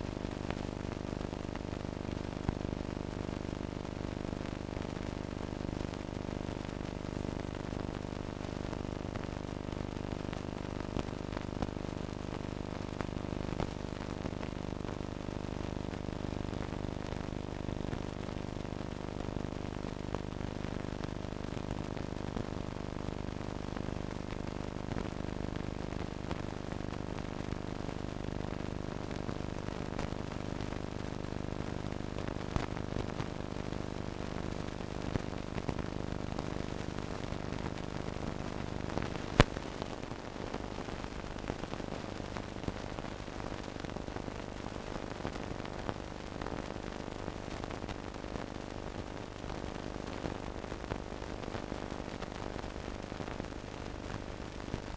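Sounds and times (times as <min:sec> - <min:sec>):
crackles and pops: 0:00.0 - 0:54.9
film soundtrack hiss and hum: 0:20.9 - 0:46.9.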